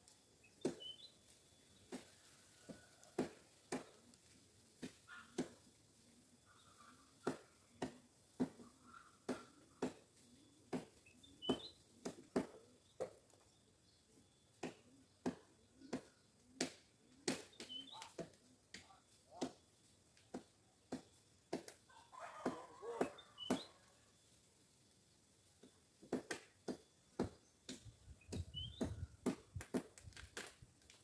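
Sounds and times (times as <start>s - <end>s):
faint high bird chirps: 0.4s - 3.0s, 10.2s - 12.0s, 17.4s - 19.9s, 21.9s - 24.4s, 26.9s - 29.2s.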